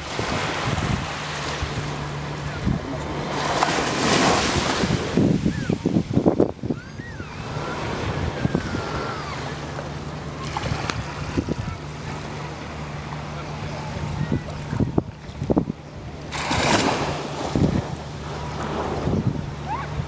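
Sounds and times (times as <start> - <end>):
low hum of boat engine: 0.0 - 20.0
small waves washing onto sand: 0.0 - 20.0
wind buffeting microphone: 0.0 - 20.0.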